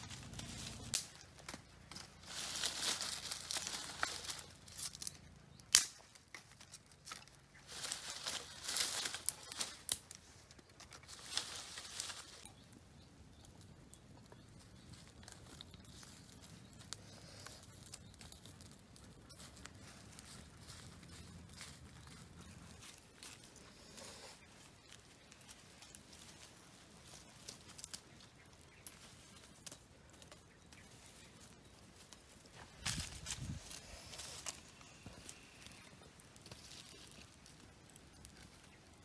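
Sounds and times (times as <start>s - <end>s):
dry sticks and leaves rustling: 0.0s - 39.0s
sharp twig cracks: 0.6s - 2.1s, 3.1s - 7.4s, 8.2s - 11.0s.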